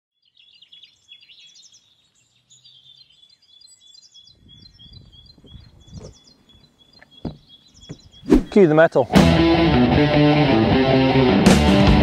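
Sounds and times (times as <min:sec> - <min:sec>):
birds chirping and singing: 0:00.2 - 0:09.1.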